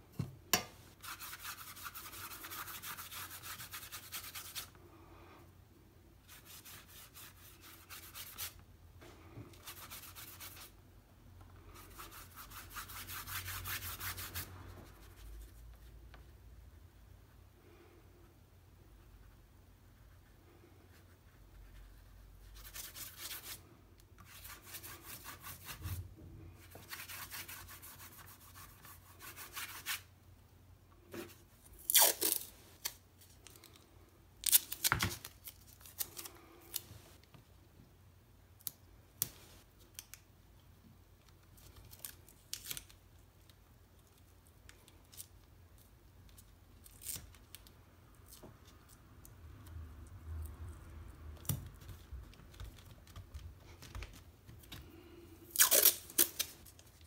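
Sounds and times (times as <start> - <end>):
tape ripping: 31.8 - 33.0, 55.5 - 56.7.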